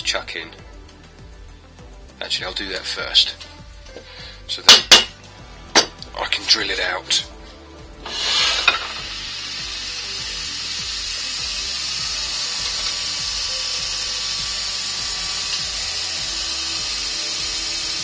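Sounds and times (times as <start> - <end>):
wood lathe running: 8.0 - 18.0.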